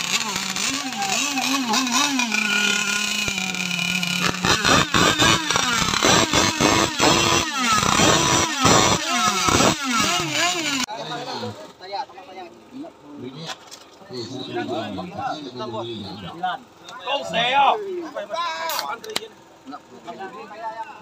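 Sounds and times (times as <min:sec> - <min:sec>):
small engine revving in blips: 0:00.0 - 0:10.9.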